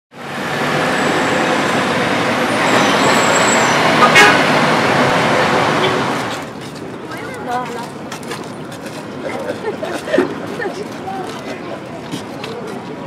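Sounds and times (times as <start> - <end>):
road traffic: 0.1 - 13.0
vehicle horn toot: 2.5 - 4.7.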